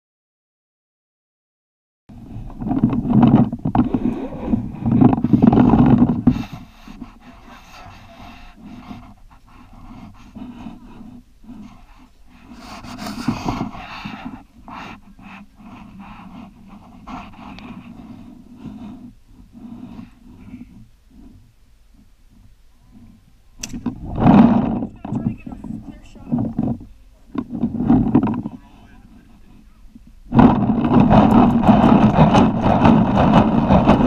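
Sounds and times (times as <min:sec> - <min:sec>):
person breathing hard: 0:03.8 - 0:16.6.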